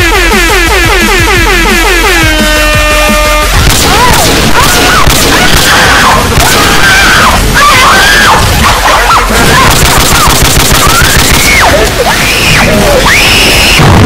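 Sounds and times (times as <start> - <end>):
crashes and hits: 3.6 - 12.0, 13.8 - 14.0.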